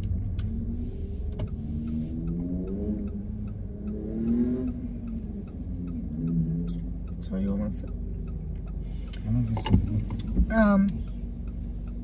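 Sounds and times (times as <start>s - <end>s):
turn signal clicking: 0.0s - 12.0s
car cabin rumble: 4.8s - 12.0s.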